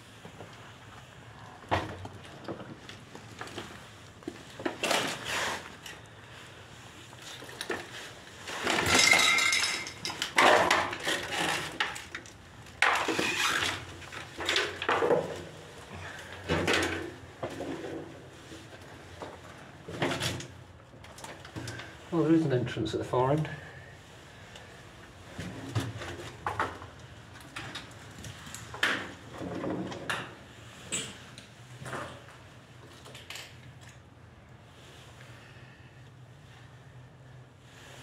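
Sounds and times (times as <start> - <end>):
debris clinking and scraping: 7.3 - 15.4.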